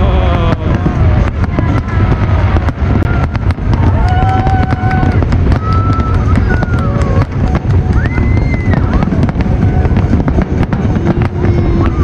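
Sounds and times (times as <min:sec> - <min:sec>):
fireworks crackling and banging: 0:00.0 - 0:12.0
low rumble: 0:00.0 - 0:12.0.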